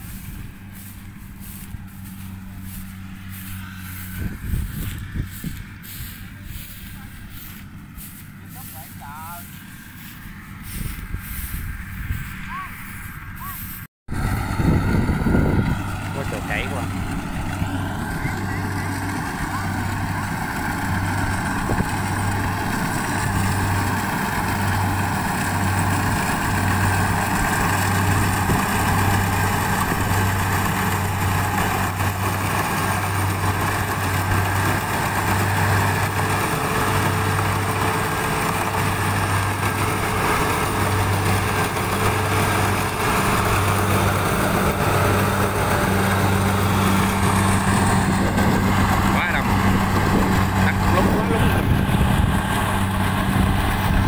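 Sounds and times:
combine harvester engine drone: 0:00.0 - 0:54.0.

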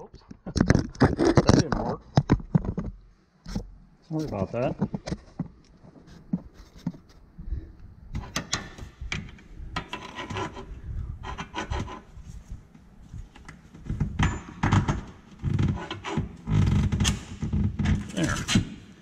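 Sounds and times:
metal scraping and knocking: 0:08.1 - 0:12.2, 0:13.8 - 0:18.6.

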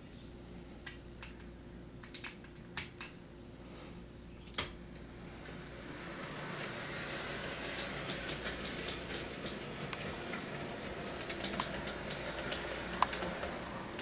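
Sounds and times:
model train whirring hum: 0:05.0 - 0:14.0
wheels clicking over track: 0:05.0 - 0:14.0.

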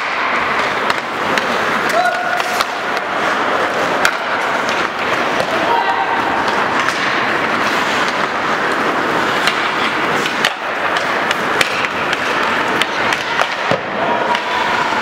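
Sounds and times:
skates scraping on ice: 0:00.0 - 0:15.0
sticks striking puck: 0:00.0 - 0:15.0.

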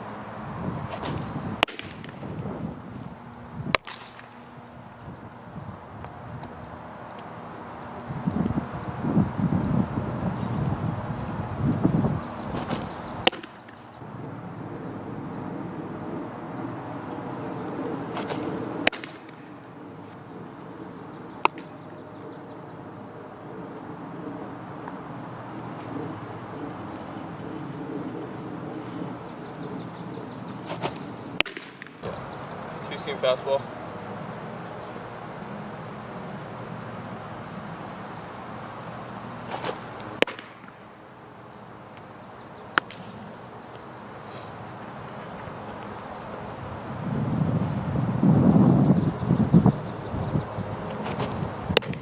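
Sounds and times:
ball smacking into mitt: 0:00.9 - 0:02.2, 0:03.7 - 0:04.4, 0:18.1 - 0:19.4, 0:30.7 - 0:32.0, 0:39.5 - 0:40.7
ball snapping into glove: 0:00.9 - 0:02.2, 0:03.7 - 0:04.4, 0:12.6 - 0:13.6, 0:18.1 - 0:19.5, 0:21.4 - 0:21.7, 0:30.7 - 0:32.1, 0:39.5 - 0:40.8, 0:42.8 - 0:43.1, 0:51.0 - 0:52.0.

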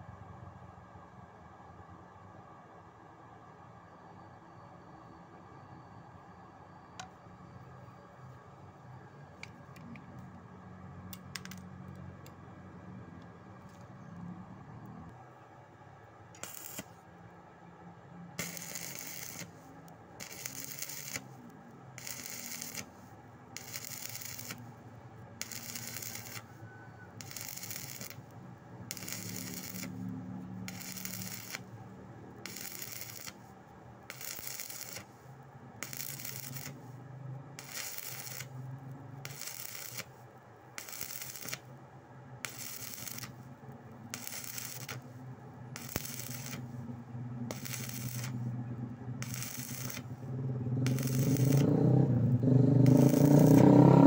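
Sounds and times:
low steady hum: 0:00.0 - 0:53.2
welding arc crackling and sizzling: 0:11.2 - 0:11.6, 0:16.4 - 0:17.0, 0:18.4 - 0:24.8, 0:25.4 - 0:26.6, 0:27.2 - 0:31.8, 0:32.4 - 0:35.2, 0:35.8 - 0:37.0, 0:37.6 - 0:40.2, 0:40.8 - 0:41.7, 0:42.4 - 0:48.5, 0:49.2 - 0:54.0.

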